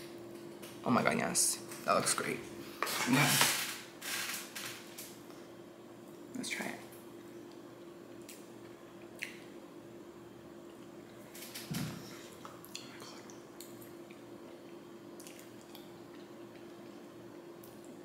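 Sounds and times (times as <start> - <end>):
steady low hum: 0.0 - 18.0
wet mouth eating sounds: 7.5 - 9.5, 12.2 - 18.0.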